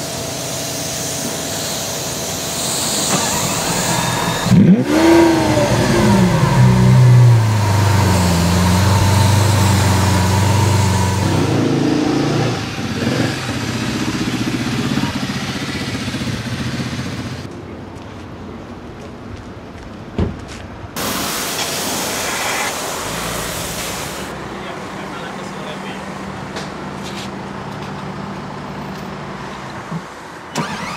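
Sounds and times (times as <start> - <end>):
car engine starting and idling: 2.3 - 17.5, 30.4 - 30.9.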